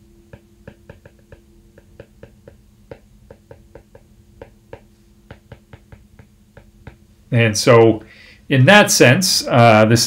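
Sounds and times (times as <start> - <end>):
faint steady hum: 0.0 - 10.0
stylus tapping on glass screen: 0.3 - 7.1.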